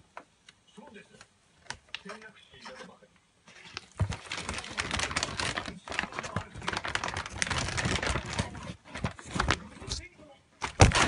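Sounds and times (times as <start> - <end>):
paper bag crinkling: 3.5 - 10.0, 10.6 - 11.0.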